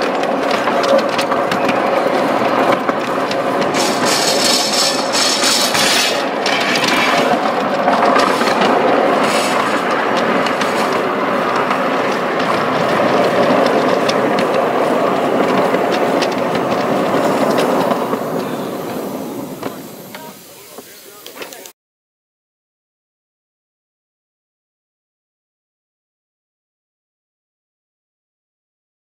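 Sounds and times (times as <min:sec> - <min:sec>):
clicking over rail joints: 0:00.0 - 0:21.7
miniature train wheels rumbling on rail: 0:00.0 - 0:21.7.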